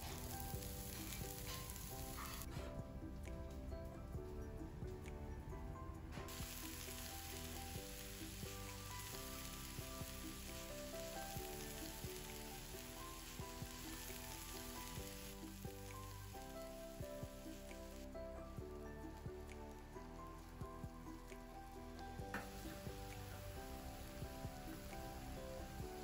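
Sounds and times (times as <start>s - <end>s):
spinach sizzling in a wok: 0.0s - 2.5s, 6.3s - 18.2s, 20.3s - 26.0s
background music: 0.0s - 26.0s.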